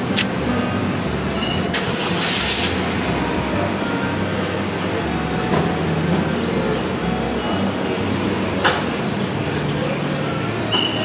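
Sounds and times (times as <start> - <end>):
motor vehicle rumble: 0.0 - 11.0.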